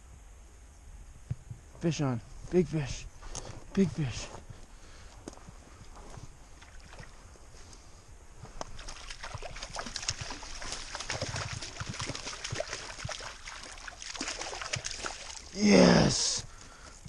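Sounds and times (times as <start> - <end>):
fish splashing in water: 8.7 - 15.6.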